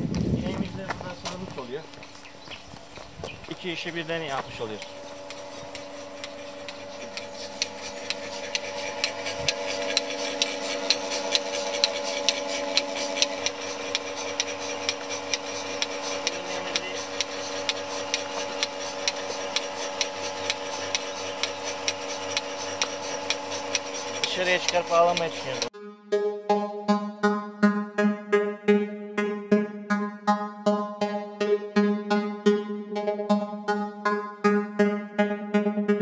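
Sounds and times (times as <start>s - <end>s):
vacuum pump humming: 0.0s - 25.7s
pulsator clicking rhythmically: 0.0s - 25.8s, 27.0s - 36.0s.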